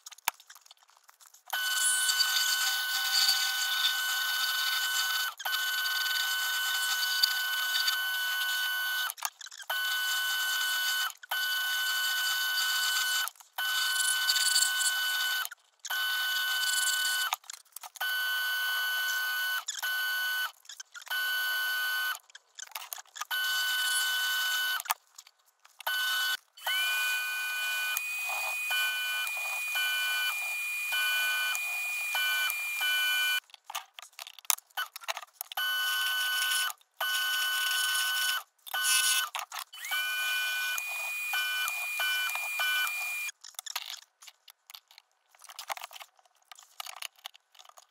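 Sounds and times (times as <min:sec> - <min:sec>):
wood lathe motor whine: 0:26.0 - 0:33.4, 0:39.8 - 0:43.3.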